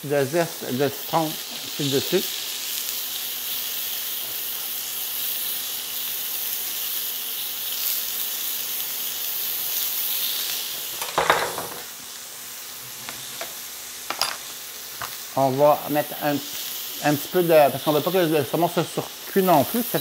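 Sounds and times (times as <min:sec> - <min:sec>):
fish sizzling in a pan: 0:00.0 - 0:20.0.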